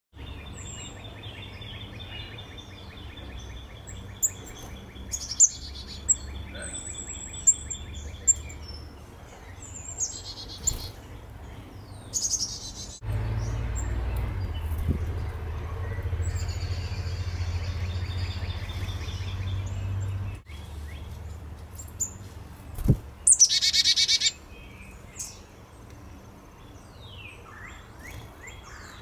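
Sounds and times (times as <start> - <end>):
buzzy bird calls: 0.3 - 25.4
bird trilling: 22.8 - 24.4.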